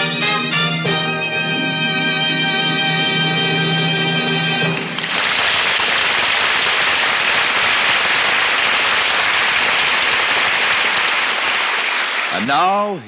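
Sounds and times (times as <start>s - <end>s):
held orchestral chord: 0.0s - 4.9s
studio audience applause: 4.6s - 12.9s.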